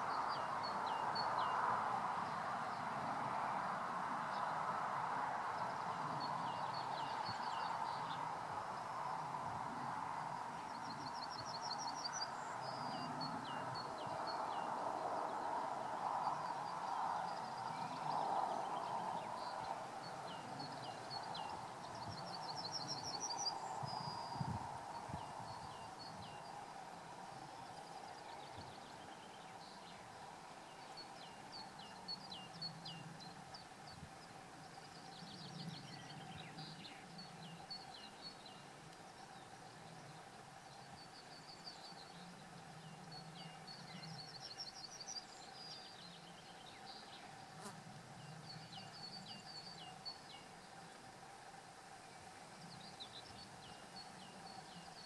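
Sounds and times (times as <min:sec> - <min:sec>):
small birds chirping: 0:15.4 - 0:55.0.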